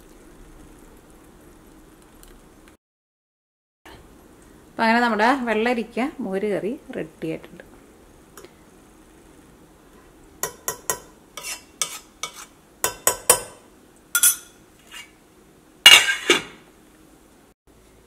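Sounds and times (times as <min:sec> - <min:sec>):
spoon tapping metal saucepan: 0:10.4 - 0:11.1, 0:12.8 - 0:13.6, 0:14.2 - 0:14.5
metal lid clattering on pot: 0:15.9 - 0:16.6.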